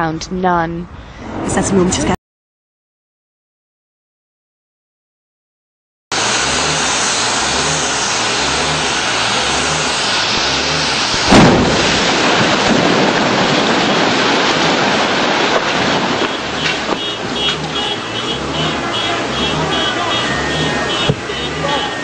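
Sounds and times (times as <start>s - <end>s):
gas rushing and rumbling: 6.1s - 22.0s
loud explosion blast: 8.8s - 21.8s.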